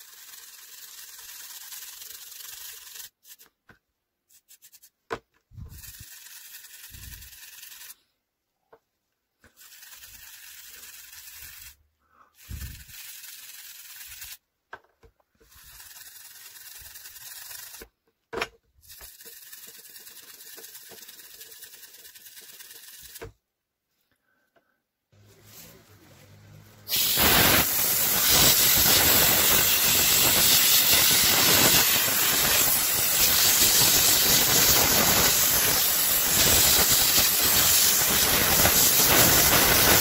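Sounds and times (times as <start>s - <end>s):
plastic parts clicking and bumping: 14.6s - 15.5s, 17.8s - 19.2s.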